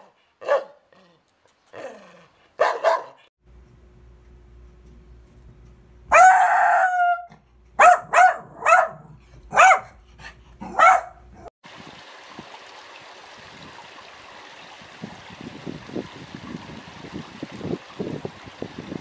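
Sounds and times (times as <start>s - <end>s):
small dog barking: 0.0s - 0.9s, 2.6s - 3.3s, 6.1s - 10.0s, 10.6s - 11.5s.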